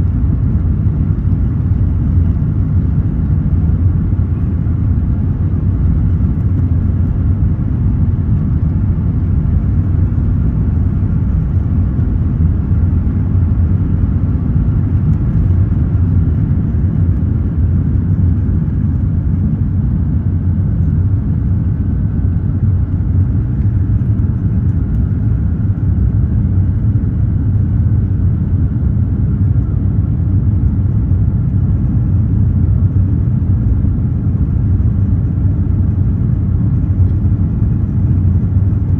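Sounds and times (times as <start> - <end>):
jet engines deep rumble: 0.0 - 38.9.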